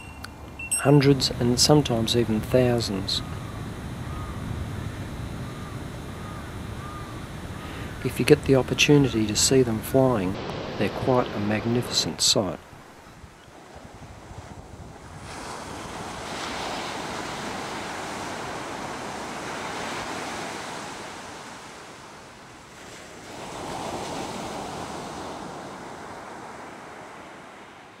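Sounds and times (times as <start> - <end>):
sea waves rushing: 0.0 - 28.0
wind: 0.0 - 28.0.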